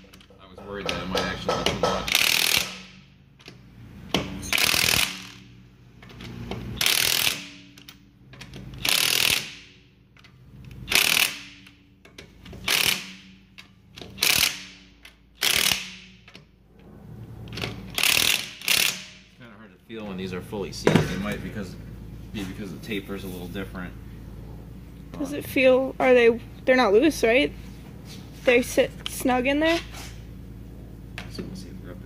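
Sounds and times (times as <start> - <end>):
ratchet wrench clicking: 1.6 - 3.6, 4.4 - 16.5, 17.5 - 19.3.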